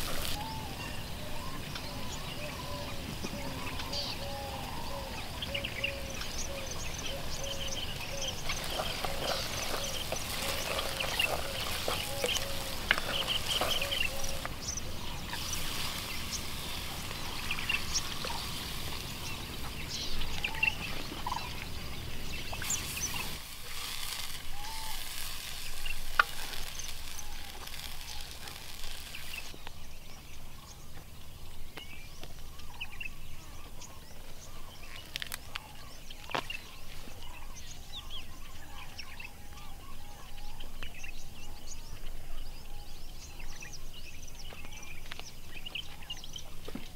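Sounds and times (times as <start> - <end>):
hiss: 0.0 - 0.6, 7.2 - 19.7, 22.4 - 29.5
birds chirping and calling: 0.0 - 46.9.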